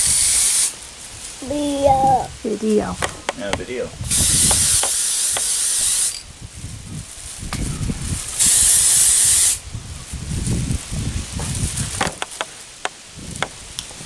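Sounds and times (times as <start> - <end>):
aerosol spray can hissing: 4.1 - 6.2, 8.4 - 9.6.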